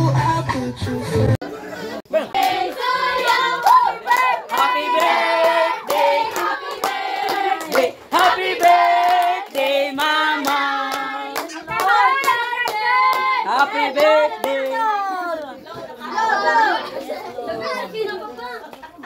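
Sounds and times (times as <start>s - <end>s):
group singing with children: 2.1s - 15.1s
rhythmic hand clapping: 2.3s - 15.0s.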